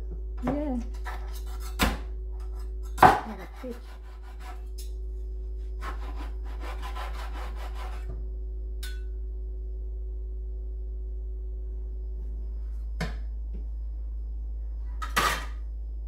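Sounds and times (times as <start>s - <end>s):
steady low hum: 0.0s - 16.0s
cleaver sawing through chicken: 3.4s - 4.7s, 5.8s - 8.1s.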